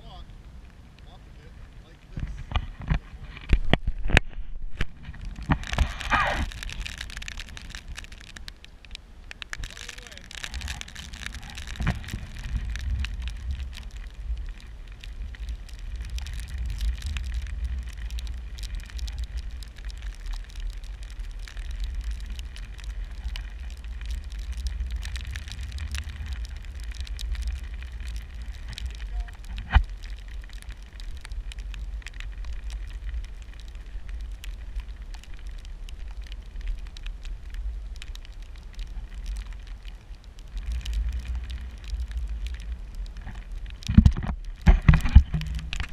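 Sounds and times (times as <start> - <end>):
light crackling: 0.0 - 45.9
wind buffeting microphone: 0.0 - 45.9.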